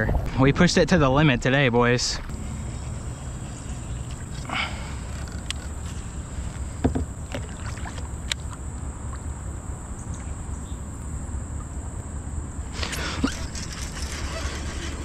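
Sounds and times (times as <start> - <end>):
wind rumbling on microphone: 0.0 - 8.3
water lapping against hull: 2.3 - 9.4.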